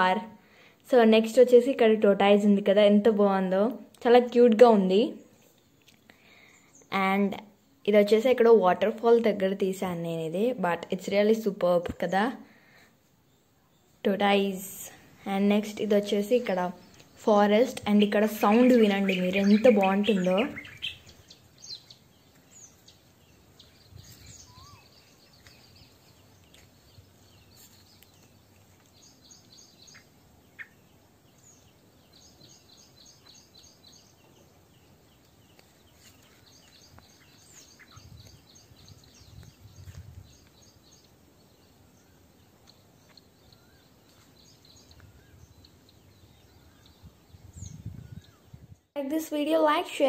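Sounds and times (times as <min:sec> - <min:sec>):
bird chirping: 0:13.2 - 0:48.9
other bird calls: 0:16.8 - 0:41.2.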